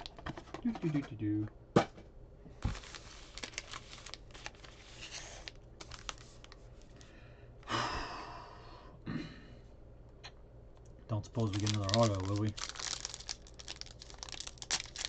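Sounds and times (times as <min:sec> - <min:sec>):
card pack wrappers crinkling: 0:02.6 - 0:07.1, 0:11.3 - 0:15.0
wrapper rustling in hands: 0:02.6 - 0:07.1, 0:11.4 - 0:15.0.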